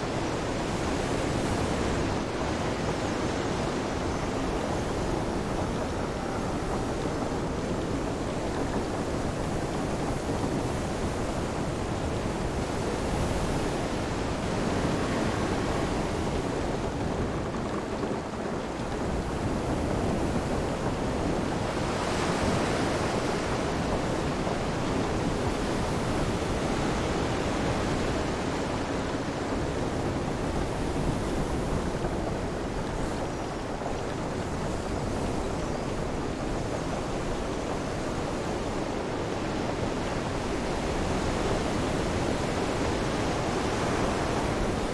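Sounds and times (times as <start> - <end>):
rain: 0.0 - 44.9
surf: 0.0 - 44.9.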